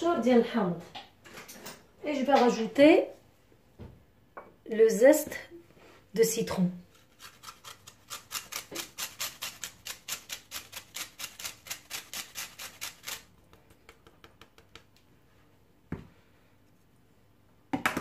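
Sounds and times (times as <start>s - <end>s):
metal grater rasping: 6.9s - 13.3s.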